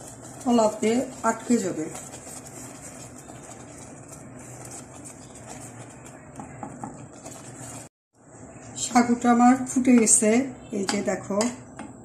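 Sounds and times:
wooden spatula scraping pan: 0.0s - 7.9s.

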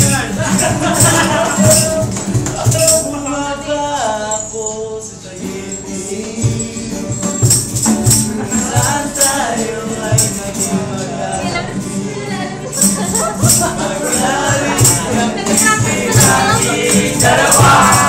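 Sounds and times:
box drum beat: 0.0s - 3.1s, 6.1s - 10.7s, 12.8s - 18.0s
acoustic guitars strumming: 0.0s - 18.0s
man singing: 0.0s - 18.0s.

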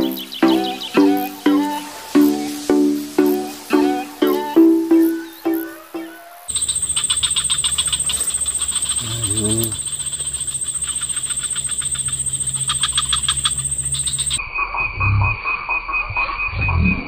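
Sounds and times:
fast pulsing insect call: 0.0s - 14.4s
high-pitched insect whine: 6.5s - 14.4s.

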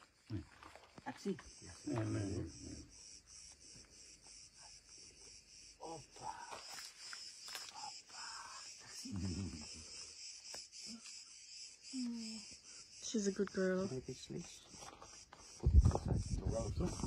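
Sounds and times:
cicadas chirring: 0.0s - 17.0s
low vocal sounds: 9.0s - 9.9s.

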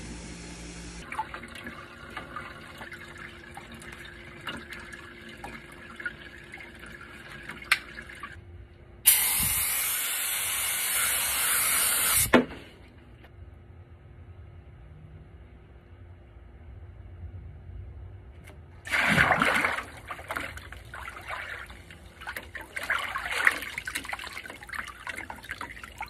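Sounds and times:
aerosol can spraying hiss: 9.1s - 12.3s.

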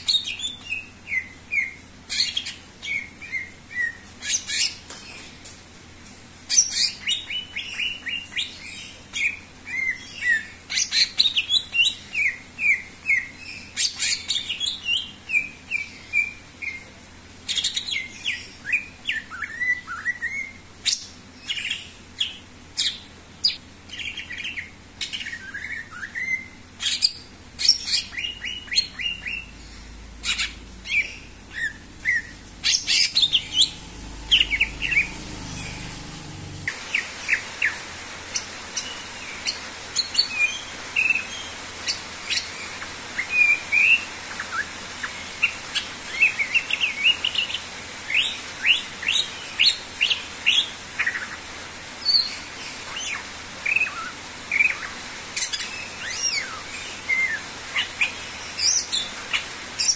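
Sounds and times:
bird singing: 17.5s - 37.8s.

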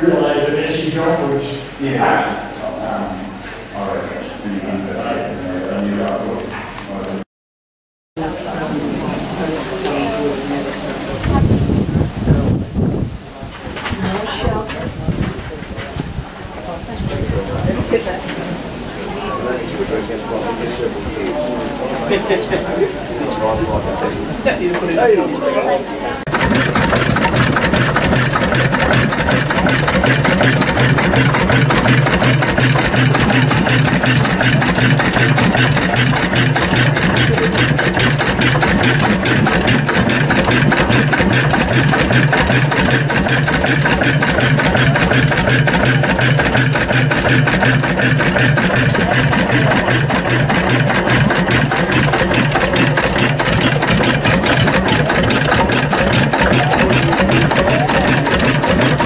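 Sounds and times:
stationary engines running: 26.2s - 59.0s.

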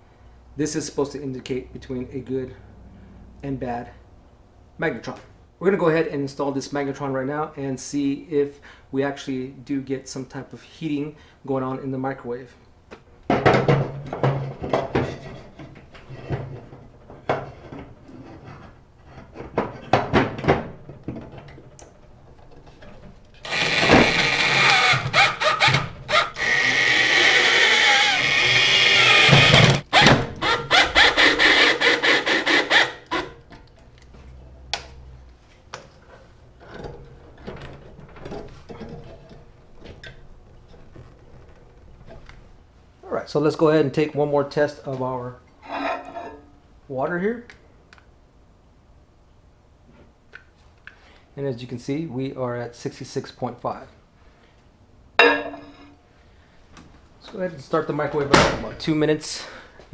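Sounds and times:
cordless drill motor whine: 23.4s - 33.3s.

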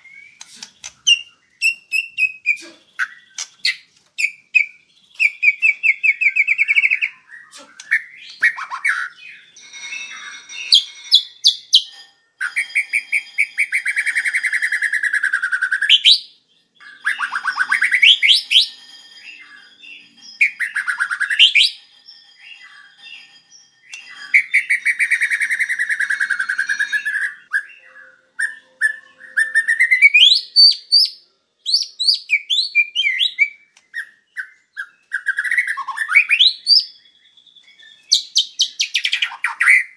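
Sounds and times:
bird singing trills and whistles: 0.0s - 39.9s.

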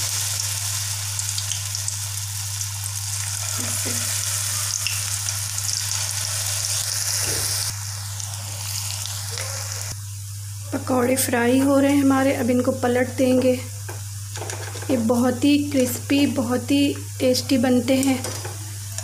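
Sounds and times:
food deep-frying in hot oil: 0.0s - 10.0s
constant low hum: 0.6s - 19.0s.

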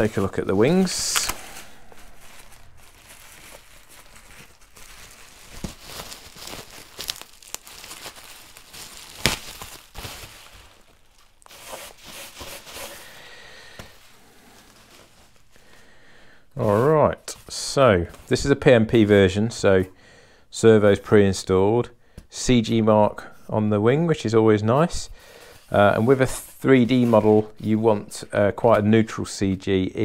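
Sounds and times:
bubble wrap rustling and crackling: 0.0s - 15.8s.

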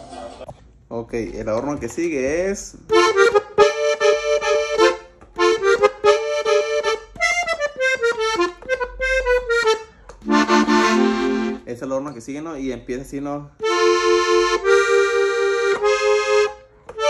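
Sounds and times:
button accordion melody: 2.6s - 11.7s, 13.6s - 17.0s.

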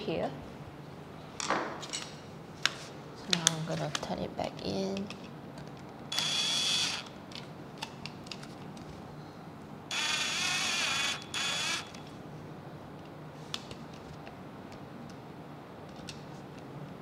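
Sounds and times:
drill motor whining in bursts: 6.1s - 7.1s, 9.9s - 12.0s.

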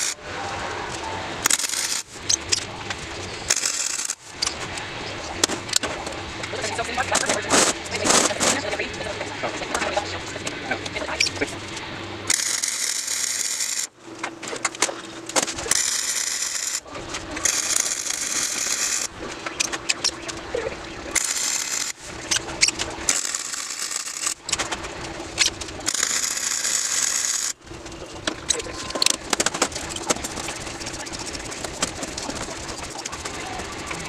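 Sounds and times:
mig welder crackling: 0.9s - 34.0s.

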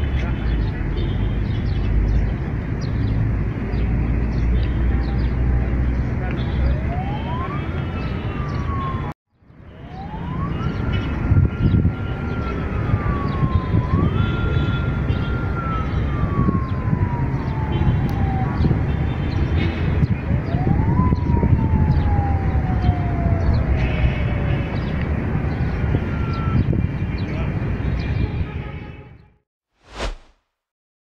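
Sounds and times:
siren wailing: 6.6s - 19.1s, 20.2s - 25.4s, 26.0s - 26.7s.

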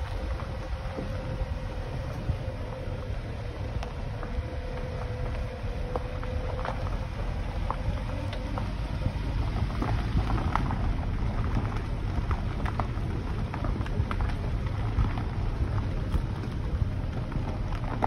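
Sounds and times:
small stones crackling: 0.0s - 18.0s
tyres rolling on gravel road: 0.0s - 18.0s.

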